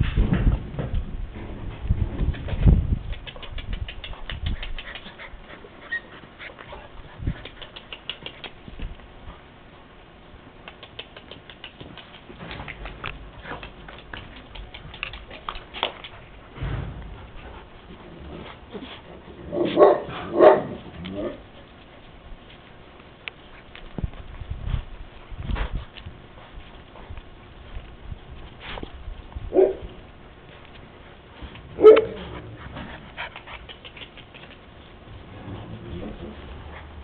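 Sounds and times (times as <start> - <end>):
puppies pattering on concrete: 1.8 - 37.0
small clicks and scrapes: 10.6 - 16.4, 30.4 - 34.9
puppy barks: 19.5 - 21.4, 29.5 - 29.9, 31.8 - 32.4.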